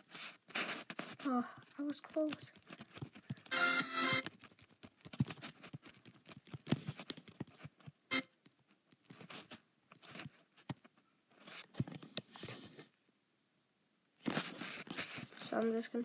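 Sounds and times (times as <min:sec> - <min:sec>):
fingers tapping touchscreen: 0:03.3 - 0:04.6.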